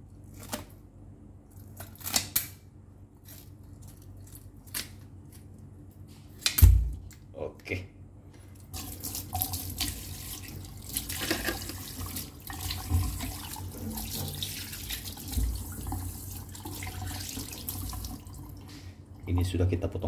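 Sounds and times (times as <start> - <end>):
tap water running into sink: 8.7 - 18.6.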